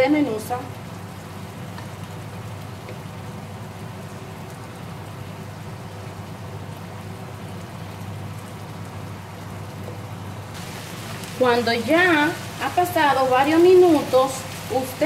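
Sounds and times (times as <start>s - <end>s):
meat sizzling in a pan: 10.4s - 15.0s.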